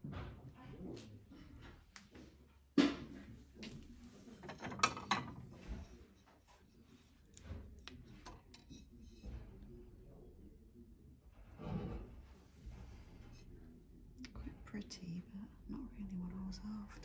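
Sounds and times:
porcelain plates clinking: 0:04.4 - 0:05.5.

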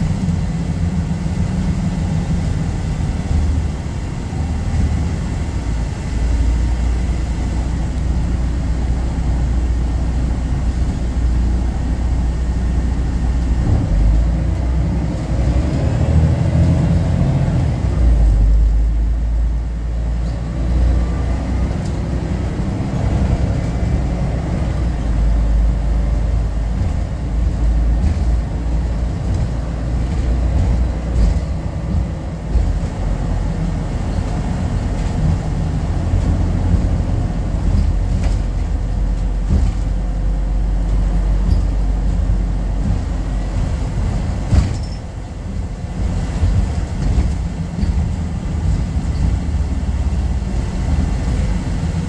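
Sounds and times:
bus engine rumbling: 0:00.0 - 0:52.0
body knocks and rattles: 0:26.2 - 0:45.2.

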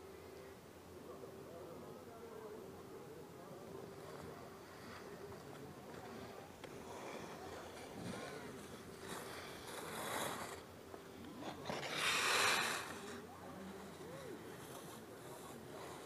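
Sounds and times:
skis scraping on turns: 0:03.8 - 0:16.0
skis sliding on snow: 0:03.8 - 0:16.0.

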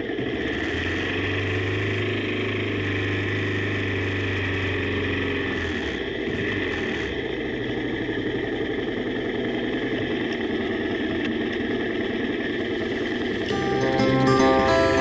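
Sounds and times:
guitar music: 0:13.5 - 0:15.0.

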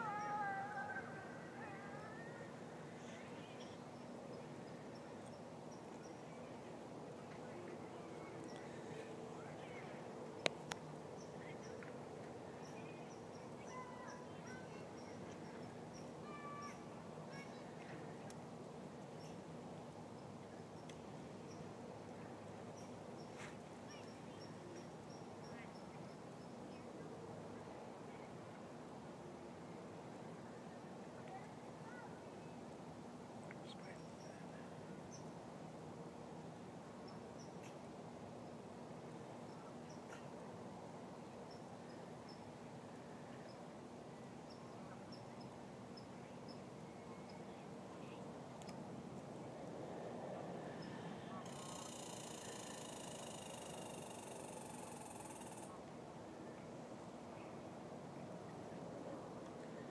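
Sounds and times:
faint high bird chirps: 0:00.0 - 0:06.4, 0:12.6 - 0:17.7, 0:22.8 - 0:26.9, 0:50.8 - 0:55.7.

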